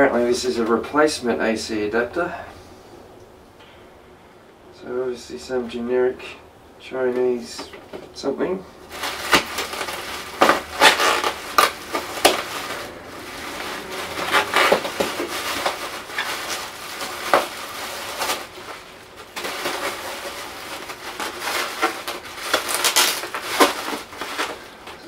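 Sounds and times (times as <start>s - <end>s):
bubble wrap crinkling: 8.8s - 25.0s.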